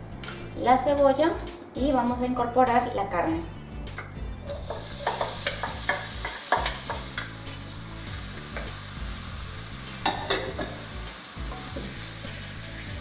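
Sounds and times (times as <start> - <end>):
food sizzling in hot oil: 4.4 - 13.0
spatula clattering on pan: 4.6 - 7.4, 10.0 - 10.8.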